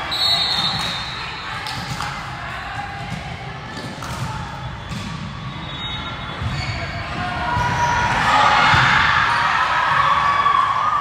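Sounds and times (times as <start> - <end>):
murmur of voices in a hall: 0.0 - 11.0.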